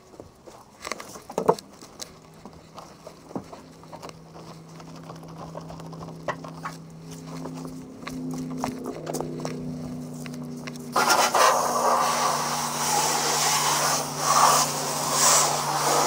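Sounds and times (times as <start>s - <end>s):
steady low hum: 0.0s - 16.0s
wash mitt scrubbing wet car: 10.9s - 16.0s.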